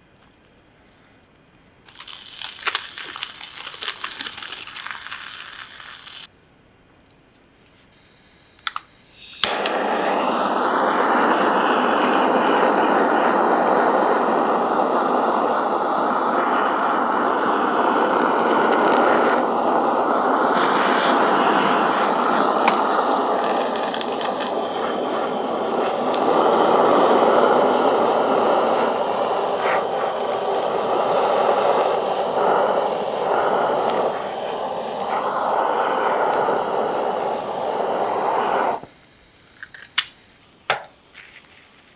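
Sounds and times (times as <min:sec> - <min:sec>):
blowtorch flame hissing: 0:01.9 - 0:06.3, 0:09.2 - 0:39.2
blowtorch igniting click: 0:08.6 - 0:38.9.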